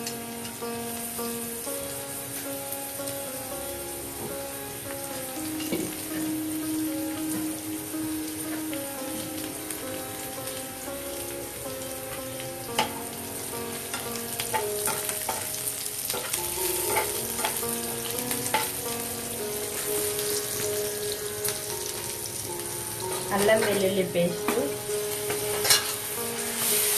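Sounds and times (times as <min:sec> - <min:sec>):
vegetables sizzling in hot oil: 0:00.0 - 0:26.9
spoon scraping and knocking pan: 0:13.9 - 0:15.5, 0:16.1 - 0:17.7, 0:23.1 - 0:26.0.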